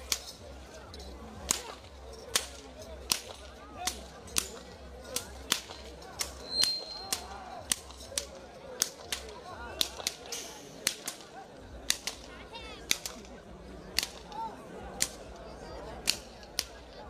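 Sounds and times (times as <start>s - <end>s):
whip cracks: 1.5s - 13.3s, 13.9s - 14.4s.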